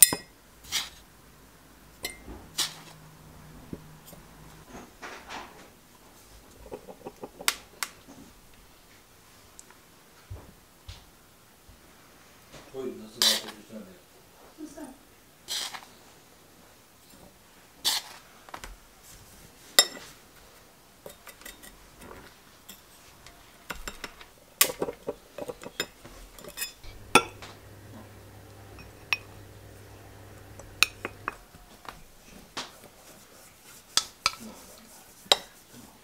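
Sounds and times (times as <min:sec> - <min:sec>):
spoons clinking against glass cups: 0:28.4 - 0:31.5.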